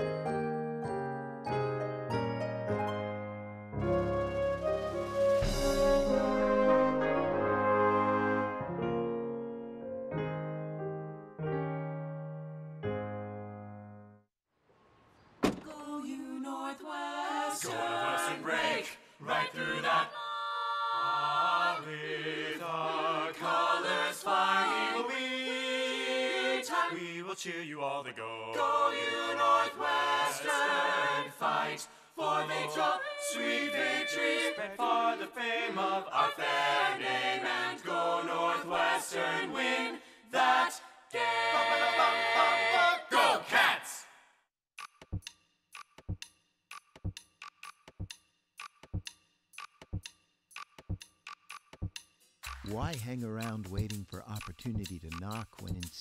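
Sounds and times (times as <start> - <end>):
a cappella group singing: 15.9 - 44.2.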